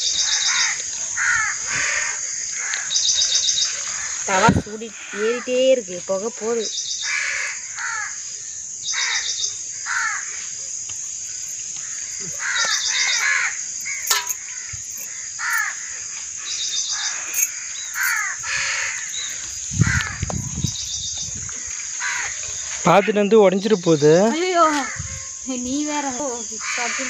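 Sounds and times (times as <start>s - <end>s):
birds calling: 2.7s - 5.9s, 10.9s - 25.5s
high-pitched insect drone: 8.0s - 27.0s.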